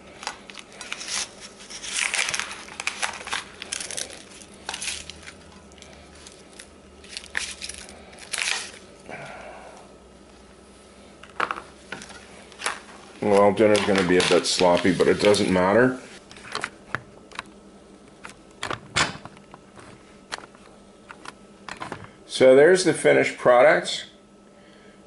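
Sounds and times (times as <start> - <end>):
foil crinkling: 0.1 - 9.0, 12.0 - 16.5
spatula scraping foil pan: 0.8 - 5.5.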